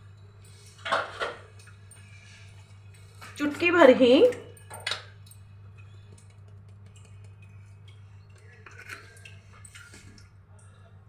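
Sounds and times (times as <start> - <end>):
low steady hum: 0.0 - 11.0
spice containers clicking and tapping: 6.1 - 8.0.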